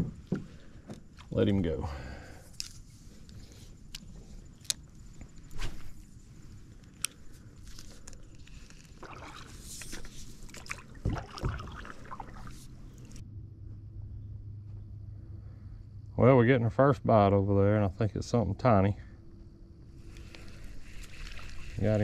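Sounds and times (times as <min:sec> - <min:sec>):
water sloshing: 0:07.7 - 0:13.2, 0:20.0 - 0:22.0
paddle knocking canoe hull: 0:10.7 - 0:11.9.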